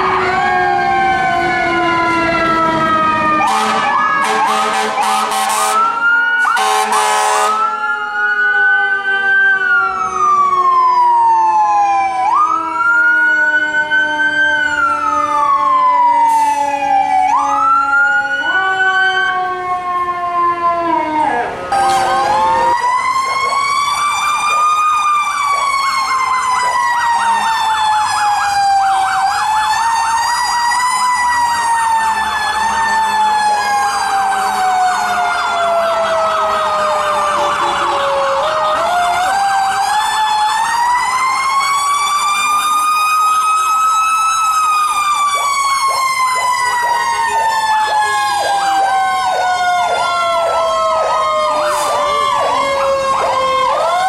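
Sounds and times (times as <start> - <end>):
yelping siren: 0.0 - 54.0.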